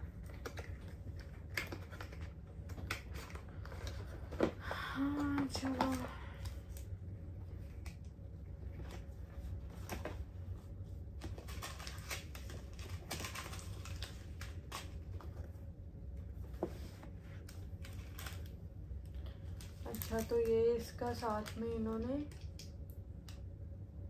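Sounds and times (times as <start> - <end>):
steady low hum: 0.0 - 24.0
packaging clicks taps and rustles: 0.1 - 6.9, 11.1 - 15.5, 17.4 - 23.4.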